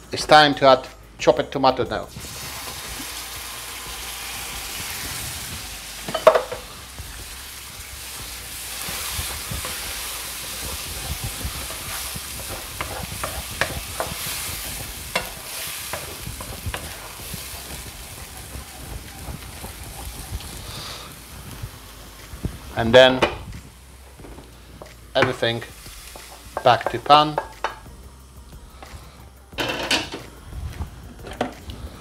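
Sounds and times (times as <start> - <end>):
tomatoes sizzling in frying pan: 2.0 - 32.0
wooden spatula scraping pan: 8.0 - 21.2.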